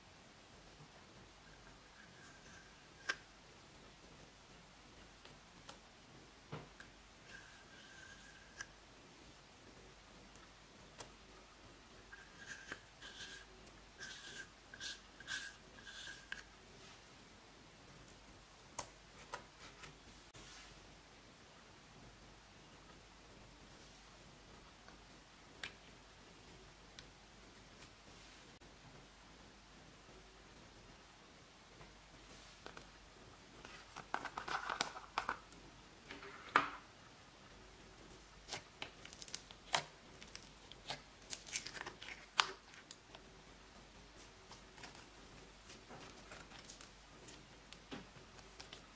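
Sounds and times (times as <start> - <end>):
spatula scraping jar: 12.1 - 16.5.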